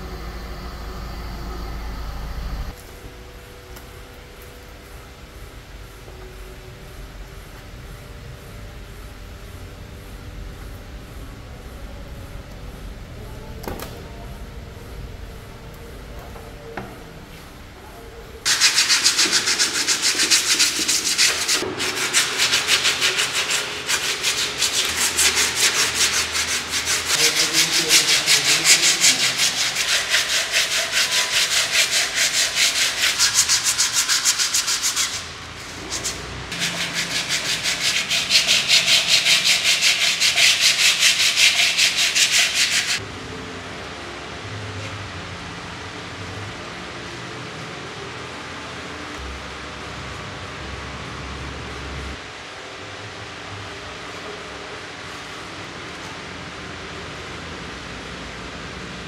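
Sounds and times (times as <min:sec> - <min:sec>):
sandpaper rubbing by hand: 0:18.4 - 0:43.0.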